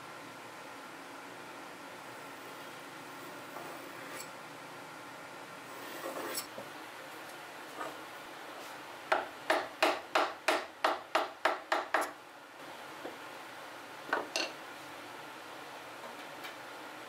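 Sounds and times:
tools scraping on wood: 3.5 - 4.3, 5.8 - 6.6
mallet tapping chisel: 9.1 - 12.1.

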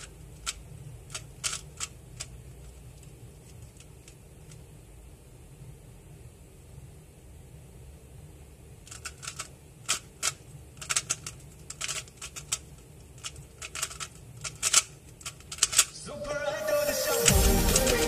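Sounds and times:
puzzle cube plastic clicks: 0.0 - 4.6, 8.8 - 16.0.

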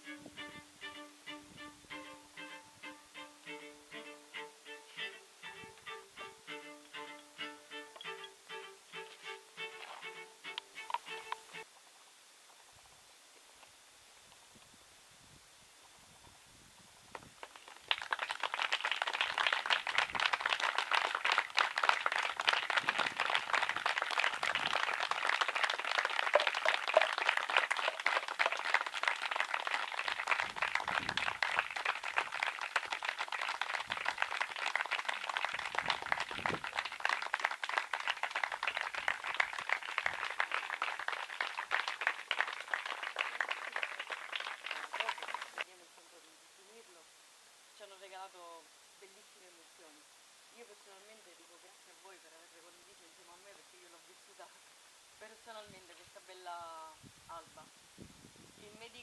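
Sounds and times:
audience applauding: 17.4 - 45.6.

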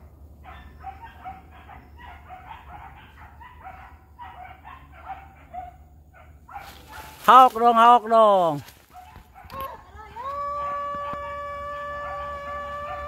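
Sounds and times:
dogs yelping barks: 0.3 - 7.2, 8.8 - 9.9.

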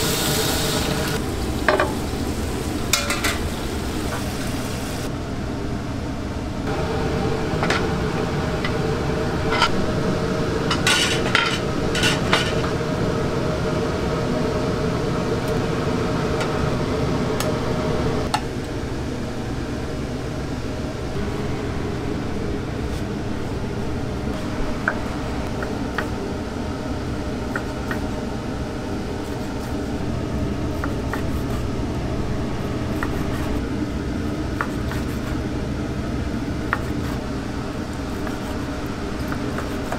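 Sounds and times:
steady background hum: 0.0 - 39.9
dishes and utensils clinking: 2.9 - 3.5, 10.7 - 12.7.

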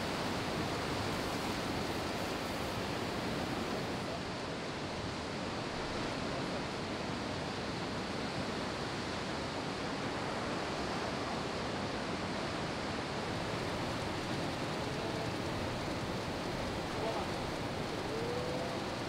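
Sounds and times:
ocean surf rushing: 12.4 - 19.0.

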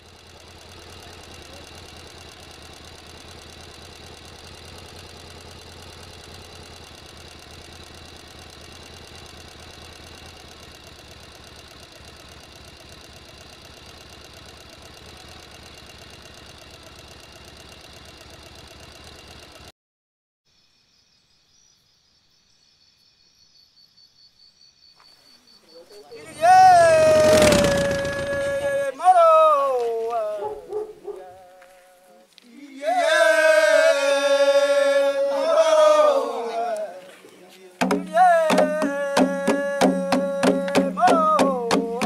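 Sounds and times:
boat engine humming: 0.0 - 19.6, 26.2 - 31.5, 37.8 - 42.0.

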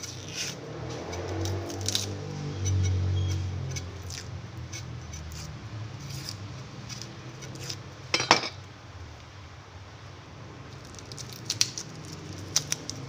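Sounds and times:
knife cutting onion: 0.0 - 7.9.

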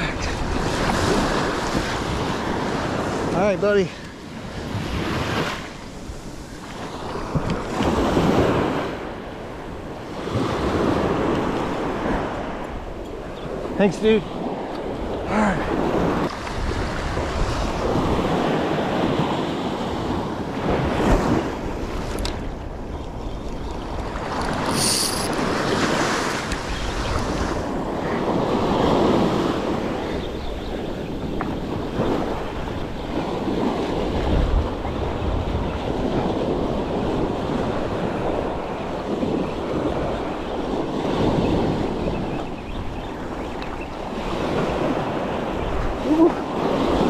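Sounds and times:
small waves breaking on sand: 0.0 - 47.0
wind buffeting microphone: 0.0 - 47.0
surf breaking on beach: 24.2 - 30.1
high hiss: 24.7 - 25.4.

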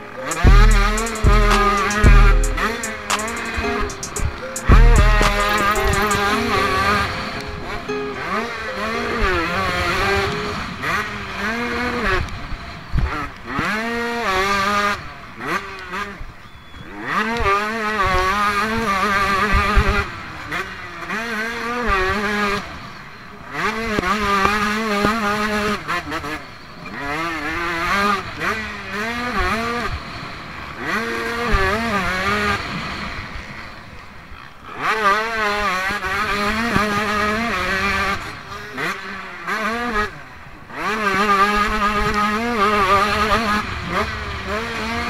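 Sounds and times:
motocross bike engine revving: 9.7 - 33.0, 34.7 - 45.0.

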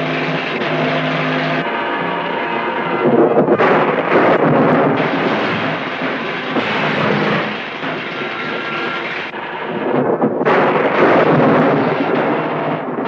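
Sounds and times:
rolling thunder rumble: 3.0 - 13.0.

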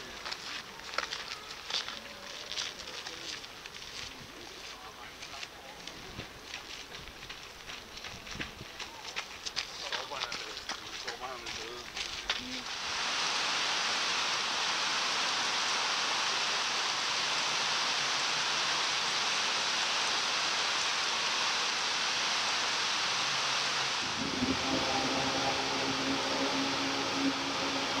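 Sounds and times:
heavy rain falling: 12.0 - 28.0
low steady hum: 23.9 - 28.0.

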